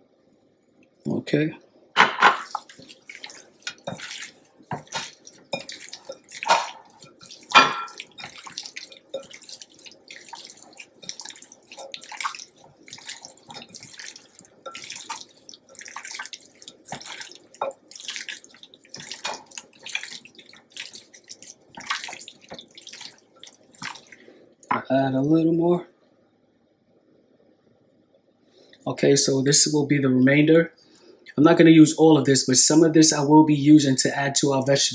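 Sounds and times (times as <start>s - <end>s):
wet squelching of raw meat: 2.4s - 24.8s.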